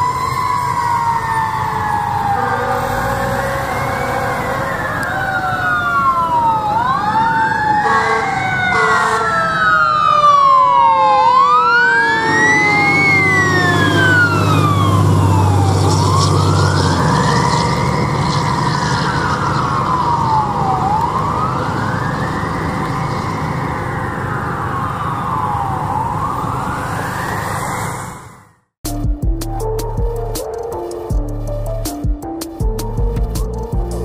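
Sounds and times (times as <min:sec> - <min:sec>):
truck engine rumble: 0:00.0 - 0:27.9, 0:28.9 - 0:34.0
siren wailing: 0:00.0 - 0:28.7
truck horn blasts: 0:02.3 - 0:04.8, 0:07.8 - 0:09.4.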